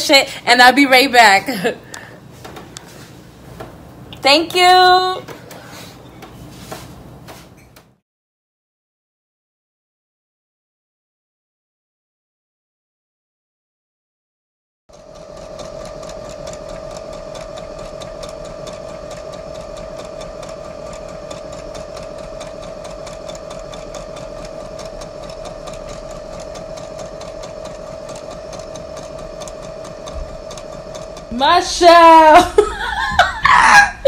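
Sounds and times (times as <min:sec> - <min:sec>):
sewing machine stitching: 0:14.9 - 0:32.5.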